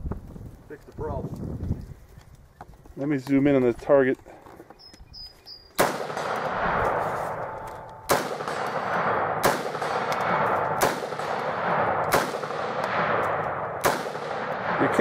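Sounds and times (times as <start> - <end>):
rifle shots echoing: 5.8 - 15.0.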